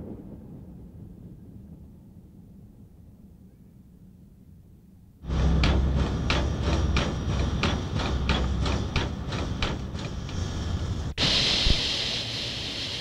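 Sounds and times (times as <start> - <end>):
low rumble: 0.0 - 13.0
steam hissing: 5.2 - 13.0
steam locomotive chuffing: 5.2 - 13.0.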